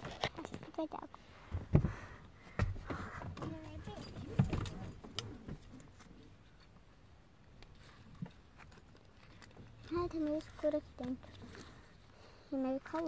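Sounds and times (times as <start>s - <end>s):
rustling inside a car: 2.6s - 6.6s.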